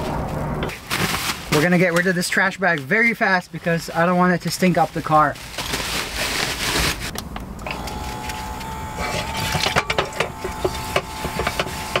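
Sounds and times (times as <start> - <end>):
plastic bag rustling: 0.0 - 2.3, 4.0 - 7.1
electric water pump whining: 7.5 - 12.0.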